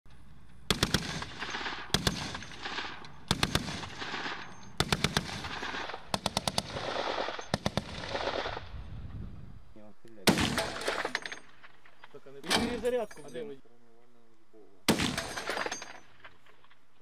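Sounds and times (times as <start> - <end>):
rolling gunfire echo: 0.5 - 8.8, 10.2 - 13.0, 14.9 - 16.6
heavy machine gun bursts: 0.7 - 8.6, 10.3 - 11.5.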